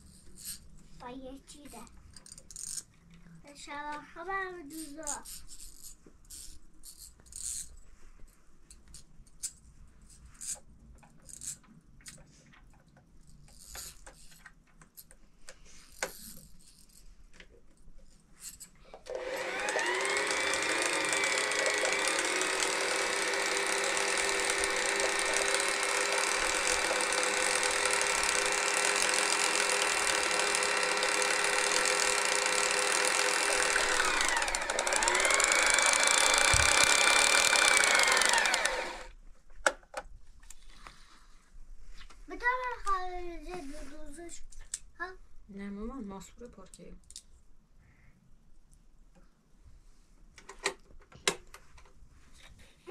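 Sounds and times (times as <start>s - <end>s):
sewing machine motor running: 19.1s - 39.1s.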